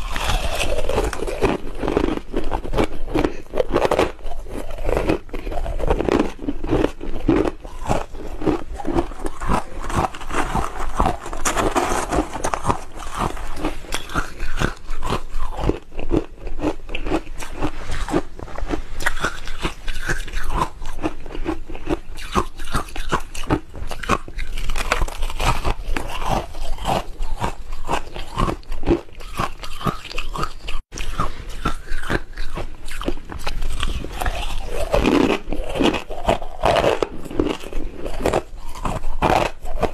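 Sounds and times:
ice being chewed: 0.0 - 39.9.

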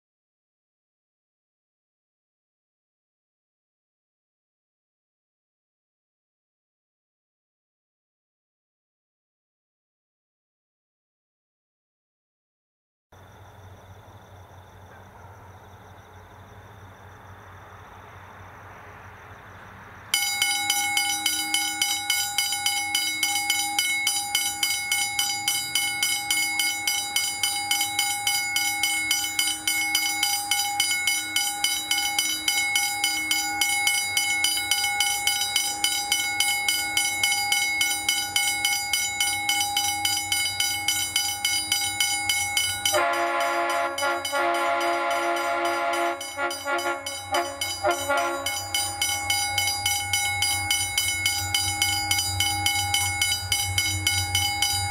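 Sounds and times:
level crossing bell ringing: 20.1 - 54.9
train horn: 42.3 - 54.9.

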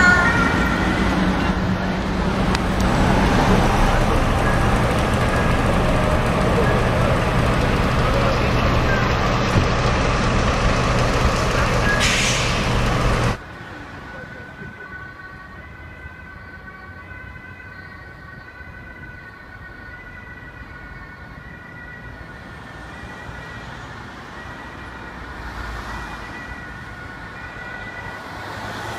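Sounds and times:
low engine rumble: 0.0 - 13.4
steady high siren tones: 0.0 - 13.4, 14.0 - 28.9.

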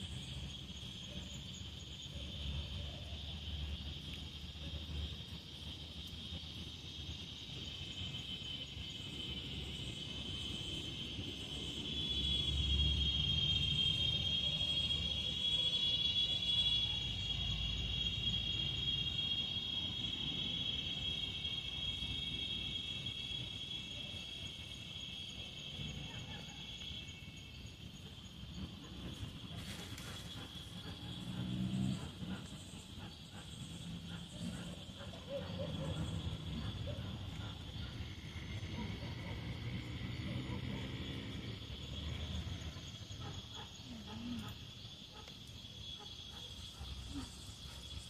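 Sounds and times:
insects chirring: 0.0 - 48.0.

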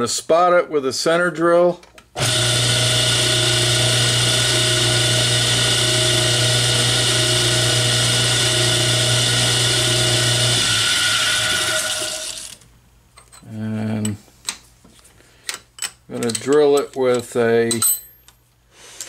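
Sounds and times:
lathe running with hum and whine: 2.2 - 12.6.

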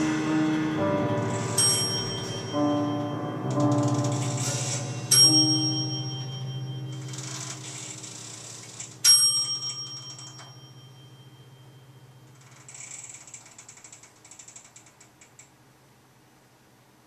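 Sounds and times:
sharp metallic strikes: 0.0 - 12.3
low piano notes: 0.0 - 12.7.

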